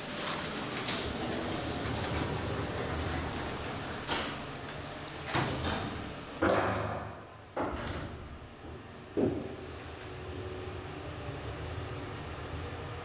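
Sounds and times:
elevator doors knocking and clunking: 0.3 - 9.6.

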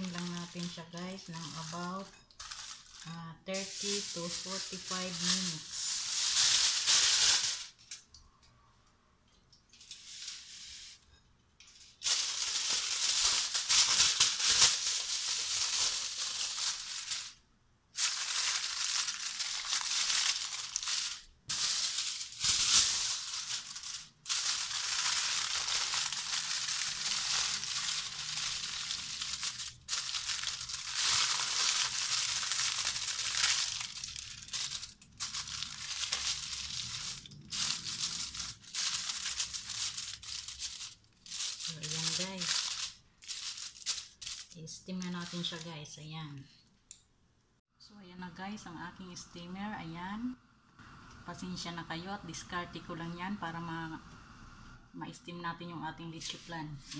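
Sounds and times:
aluminium foil crinkling: 0.0 - 8.2, 9.7 - 46.0.

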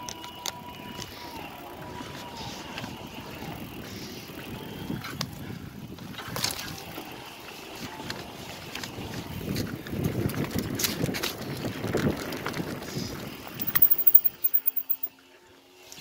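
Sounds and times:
bike clicks and rattles: 13.6 - 15.1.

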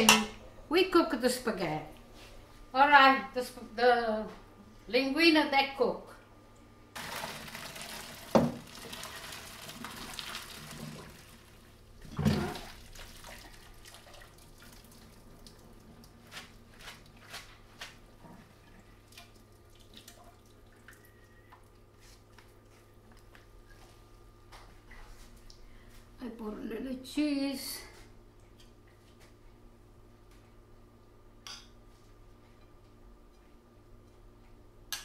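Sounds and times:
water pouring through colander: 7.0 - 11.7, 12.5 - 15.8
water dripping: 19.1 - 21.8.

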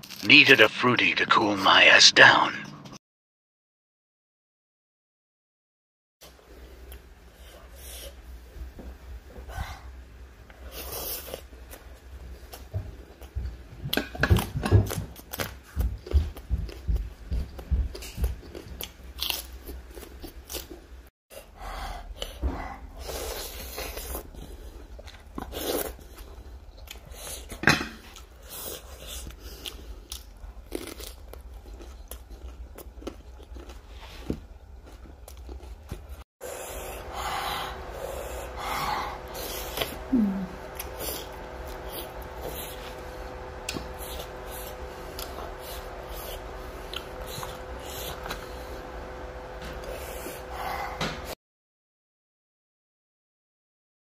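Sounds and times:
person chewing: 12.5 - 20.9, 23.0 - 48.8
food crunching: 18.2 - 20.8, 28.1 - 36.2.

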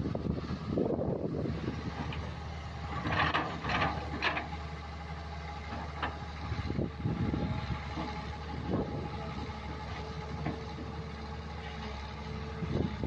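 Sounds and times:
diesel engine running: 0.0 - 13.0
excavator bucket scraping: 1.9 - 4.6.

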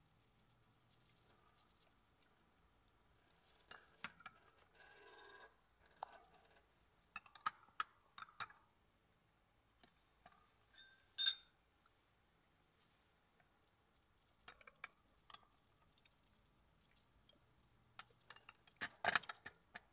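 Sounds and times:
bright ringing clink: 10.8 - 11.5
cutlery clinking on glass and ceramic: 10.8 - 11.5.

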